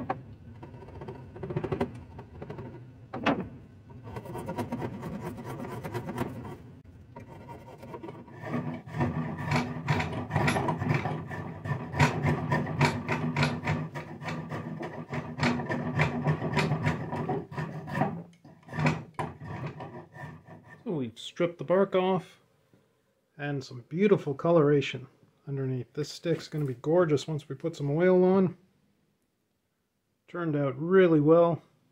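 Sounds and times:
blade scraping bark off stick: 3.9 - 6.6, 7.2 - 20.7.

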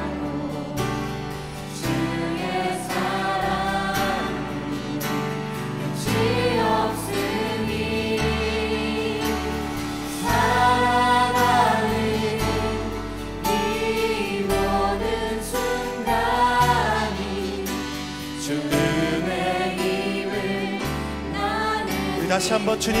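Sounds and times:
worship band playing: 0.0 - 23.0
voices singing held phrases: 18.4 - 23.0.

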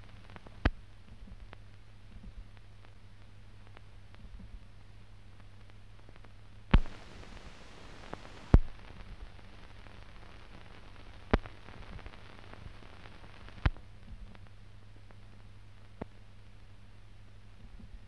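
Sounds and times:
film soundtrack hiss and hum: 0.0 - 18.0
sharp pops: 6.2 - 9.3, 11.3 - 13.8.

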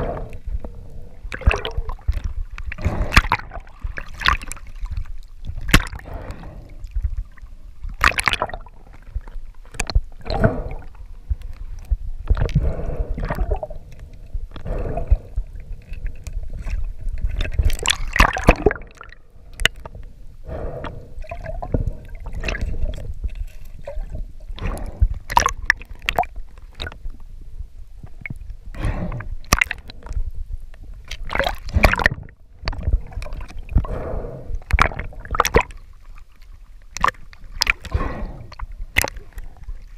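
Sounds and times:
rushes of bubbles: 0.0 - 27.0, 28.2 - 30.2, 31.1 - 39.9
sea water sloshing and gurgling: 0.0 - 39.9
water splashes: 1.2 - 27.1, 28.0 - 30.2, 31.1 - 39.9
low rumble: 4.8 - 31.1.

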